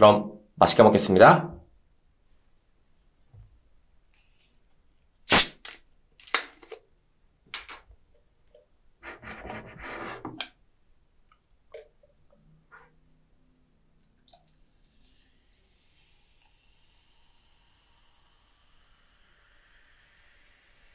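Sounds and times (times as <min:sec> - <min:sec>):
plastic bottle cap cracking open: 0:05.3 - 0:06.8
soda pouring into a mug: 0:14.1 - 0:20.9
carbonation hissing: 0:14.2 - 0:20.9.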